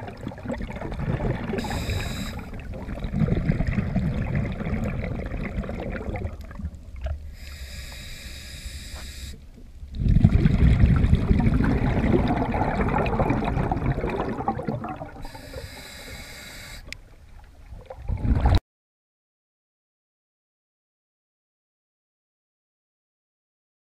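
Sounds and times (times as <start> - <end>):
exhaled bubbles rushing: 0.0 - 7.3, 9.9 - 15.6, 17.7 - 18.6
regulator hissing inhalation: 1.6 - 2.6, 7.3 - 9.4, 15.2 - 16.9.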